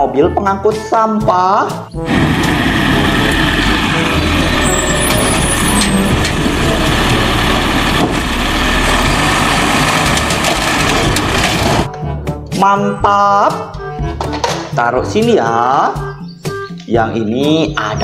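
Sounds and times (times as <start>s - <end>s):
garbage truck engine running: 2.0s - 11.9s
hissing rush: 2.1s - 11.9s.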